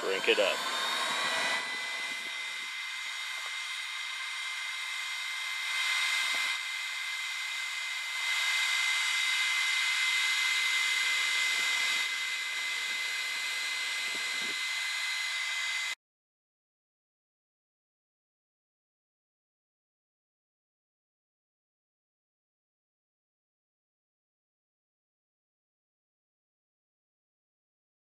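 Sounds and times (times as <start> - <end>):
heat gun fan whine: 0.0 - 16.0.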